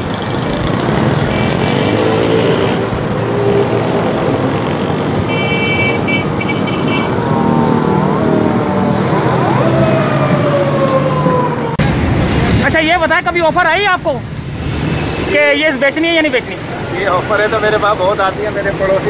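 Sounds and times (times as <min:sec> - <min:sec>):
motorcycle engine: 0:00.0 - 0:12.6
street traffic: 0:00.0 - 0:19.0
siren wailing: 0:06.9 - 0:11.8.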